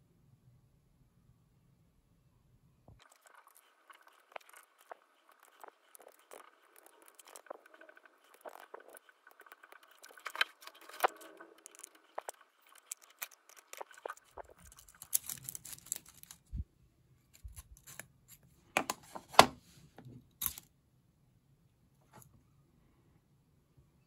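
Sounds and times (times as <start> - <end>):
faint low hum: 0.0 - 24.0
tweezers clicking and scraping: 3.0 - 16.5, 17.4 - 18.4, 20.4 - 20.7.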